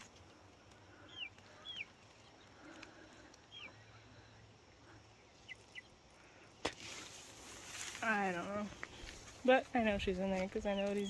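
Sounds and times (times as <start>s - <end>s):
faint bird calls: 0.0s - 6.7s.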